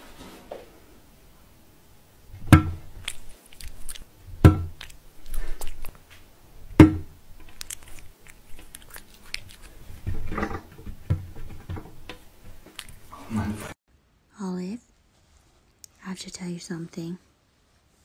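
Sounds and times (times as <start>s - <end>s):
sharp knocks: 2.4s - 2.9s, 4.4s - 4.8s, 6.8s - 7.1s
cat crunching and licking: 2.8s - 6.2s, 7.2s - 13.1s.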